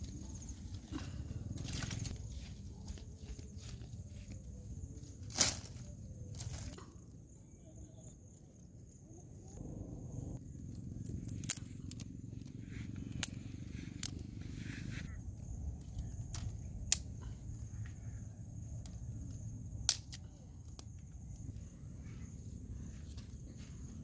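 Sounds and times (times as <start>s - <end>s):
twig fire crackling: 10.7s - 17.3s, 18.6s - 21.6s
sharp snaps of burning twigs: 11.0s - 14.4s, 15.8s - 17.4s, 18.6s - 21.5s.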